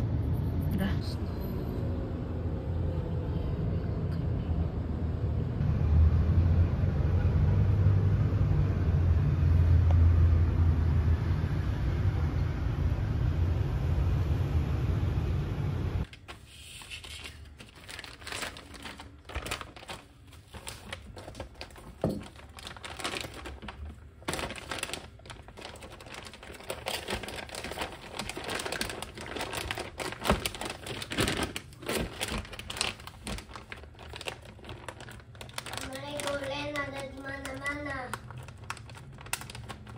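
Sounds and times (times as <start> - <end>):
low steady rumble: 0.0 - 16.1
plastic bag crinkling: 16.1 - 39.9.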